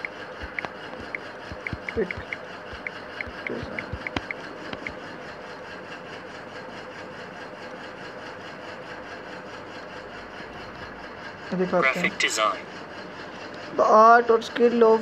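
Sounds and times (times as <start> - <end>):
phone keyboard clicks: 0.0 - 5.0
steady background hum: 0.0 - 15.0.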